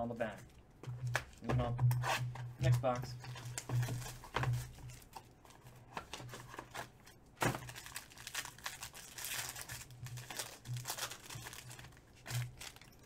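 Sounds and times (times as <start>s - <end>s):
foil pack crinkling: 2.7s - 13.0s.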